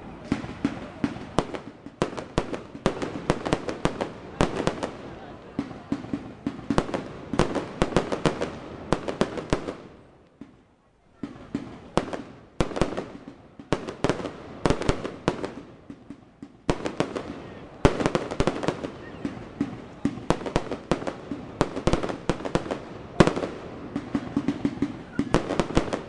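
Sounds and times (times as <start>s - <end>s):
fireworks bangs: 0.0s - 26.0s.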